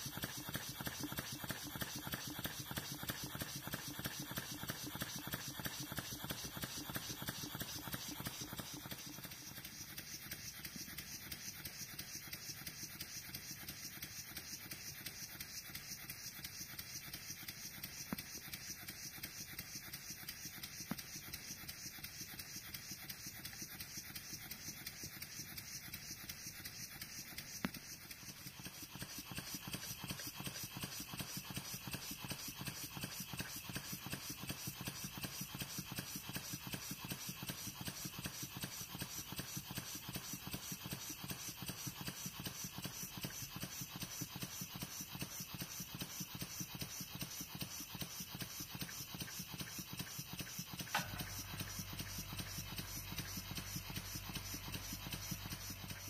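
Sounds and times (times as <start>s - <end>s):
model steam engine exhaust puffs: 0.0s - 56.0s.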